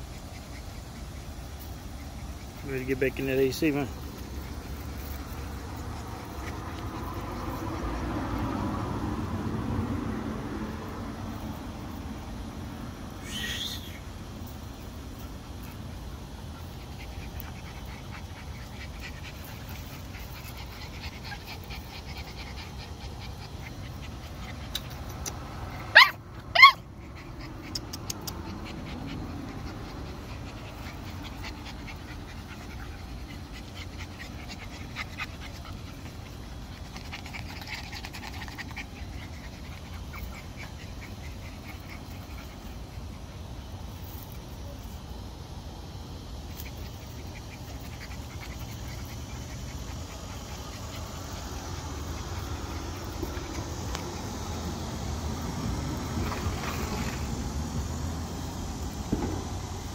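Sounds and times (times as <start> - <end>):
puppies panting: 0.0 - 59.9
puppy yelps: 13.2 - 14.1, 22.8 - 30.3.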